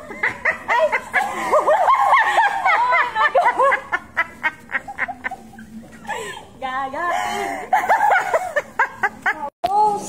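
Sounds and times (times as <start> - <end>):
women laughing: 0.0 - 9.5.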